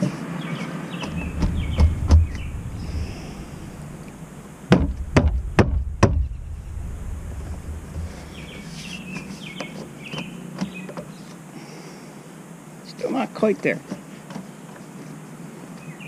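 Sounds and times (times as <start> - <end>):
sharp knocks on roof rail: 4.7 - 6.2.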